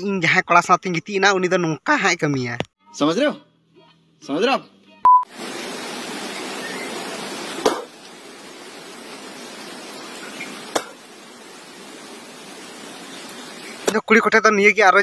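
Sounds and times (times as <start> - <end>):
test tone beep: 5.0 - 5.3
static hiss: 5.3 - 14.0.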